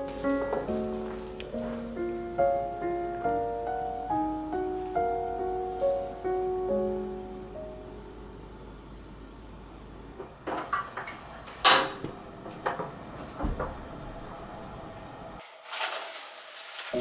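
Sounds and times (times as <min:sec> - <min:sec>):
cling film rustling: 0:00.0 - 0:02.3, 0:15.4 - 0:17.0.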